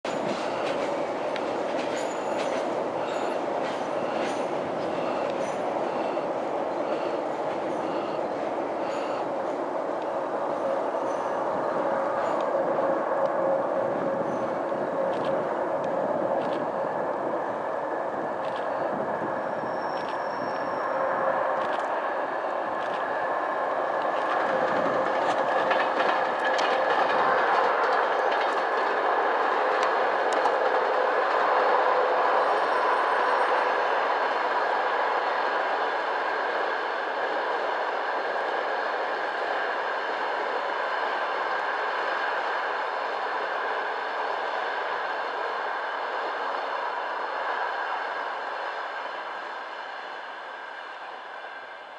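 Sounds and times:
wheels clicking over rail joints: 0:00.1 - 0:06.2, 0:24.0 - 0:31.6
train wheels rumbling: 0:00.1 - 0:51.9.

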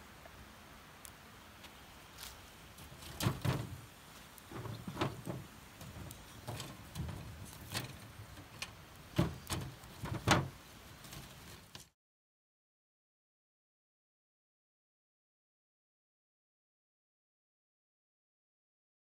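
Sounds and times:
wood sticks dropped into tin stove: 0:02.9 - 0:03.8, 0:04.4 - 0:11.4
dull handling thumps: 0:03.0 - 0:03.8, 0:04.5 - 0:08.5, 0:09.1 - 0:11.3.

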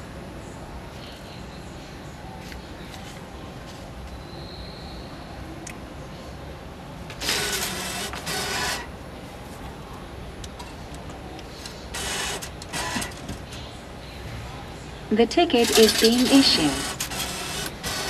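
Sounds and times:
banknote feed mechanism running: 0:07.1 - 0:08.9, 0:11.5 - 0:13.8, 0:15.4 - 0:18.0.

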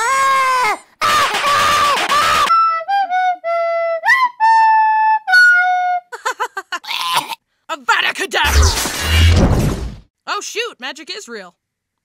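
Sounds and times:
child wailing: 0:00.0 - 0:02.5
recorder playing slow tune: 0:02.5 - 0:06.1.

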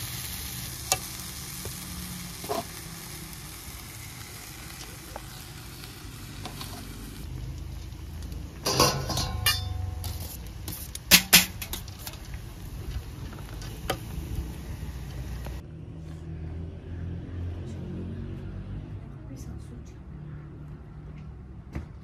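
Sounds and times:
metal utensils clanking on a pot: 0:08.6 - 0:12.3.

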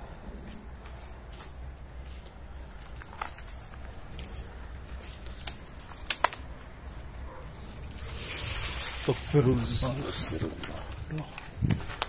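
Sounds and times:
faint crackles: 0:00.0 - 0:12.0.

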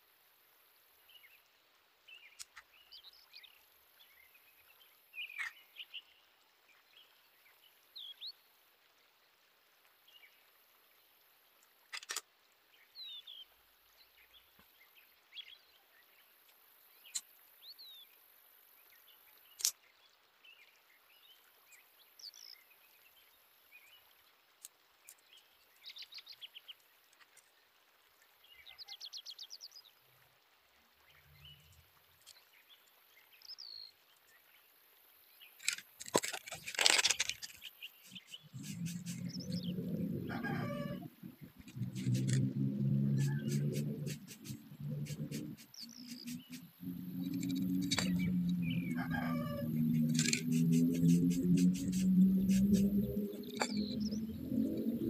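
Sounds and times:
small birds chirping: 0:35.4 - 0:42.5, 0:43.2 - 0:54.7.

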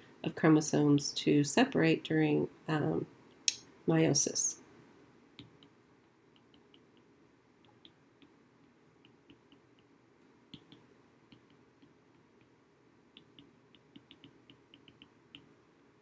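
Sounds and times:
stylus tapping on glass screen: 0:13.2 - 0:15.5.

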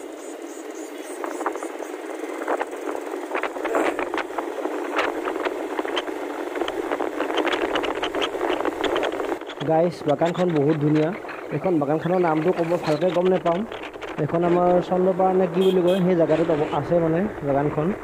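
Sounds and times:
wind rushing over microphone: 0:01.0 - 0:18.0
short clicks and rattles: 0:03.4 - 0:14.8.

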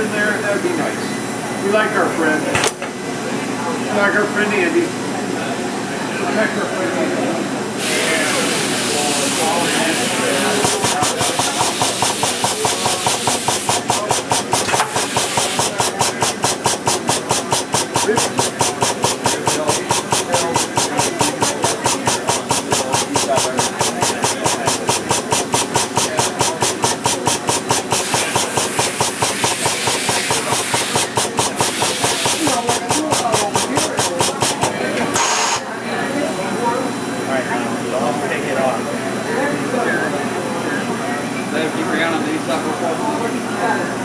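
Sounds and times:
pulsing machine hiss: 0:07.8 - 0:35.7.

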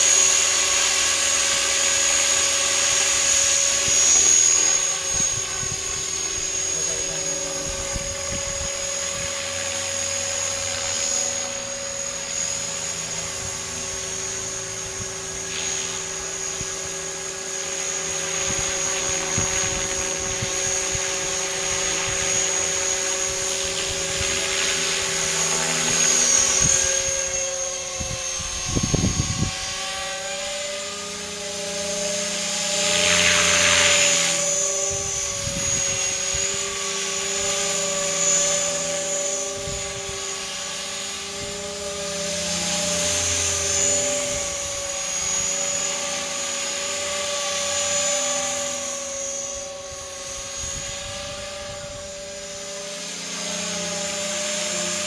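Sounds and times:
rc helicopter whine: 0:00.0 - 0:55.0
rotor blades whooshing: 0:00.6 - 0:46.8
wind buffeting microphone: 0:07.4 - 0:09.4, 0:26.5 - 0:29.8, 0:34.9 - 0:36.8.

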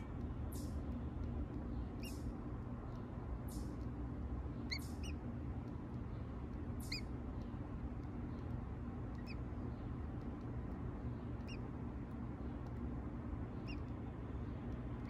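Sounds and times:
steady low hum: 0:00.0 - 0:15.0
high bird peeps: 0:01.5 - 0:02.4, 0:04.6 - 0:05.8, 0:06.7 - 0:07.6, 0:09.1 - 0:10.5, 0:11.1 - 0:11.7, 0:13.5 - 0:14.6.

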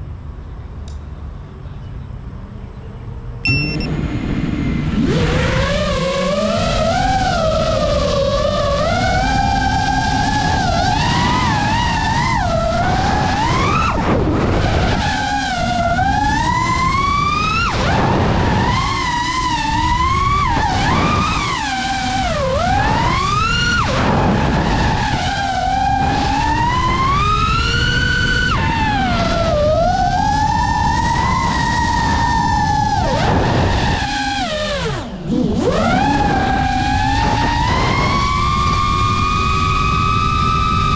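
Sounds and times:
propeller and wind rushing: 0:02.1 - 0:40.9
quadcopter motors whining: 0:03.4 - 0:40.9.

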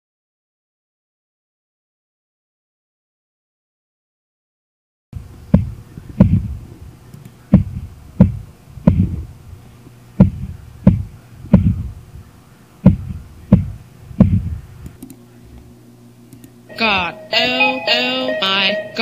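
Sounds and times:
deep kick drum beat: 0:05.5 - 0:06.6, 0:07.5 - 0:09.2, 0:10.2 - 0:12.0, 0:12.8 - 0:14.6.

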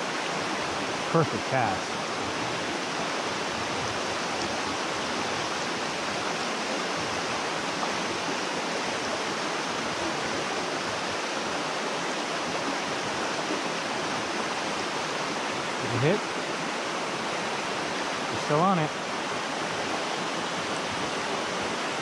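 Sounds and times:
stream cascading over rocks: 0:00.0 - 0:22.0.

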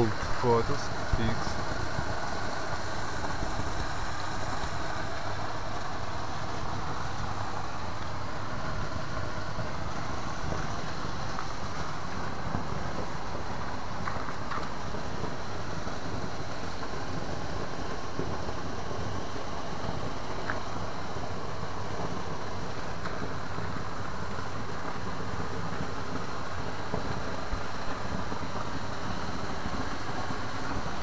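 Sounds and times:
steady rushing noise: 0:00.0 - 0:31.0.

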